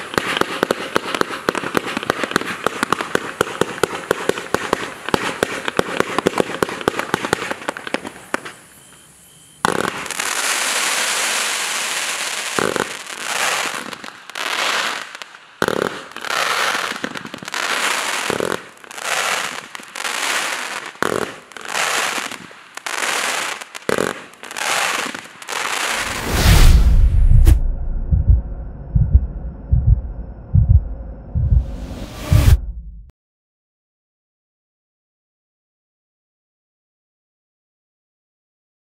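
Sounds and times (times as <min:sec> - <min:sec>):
crackling hiss of firework stars: 0:00.0 - 0:26.9
firework launch pops: 0:25.9 - 0:27.9.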